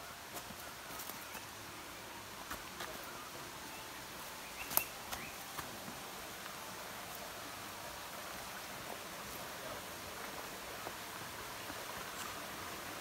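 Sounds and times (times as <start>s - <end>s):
soft steady hiss: 0.0s - 13.0s
faint bird chirps: 3.1s - 5.4s.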